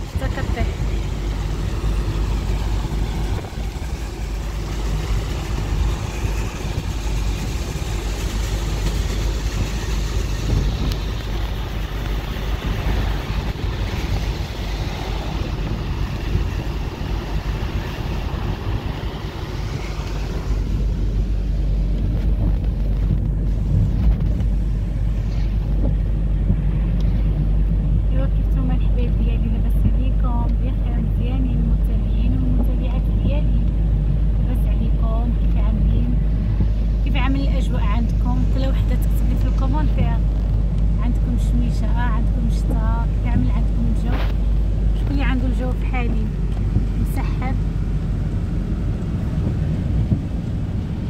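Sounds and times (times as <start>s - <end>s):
tyres hissing on wet road: 0.0s - 22.4s
low road rumble: 0.0s - 51.0s
wind: 0.0s - 51.0s.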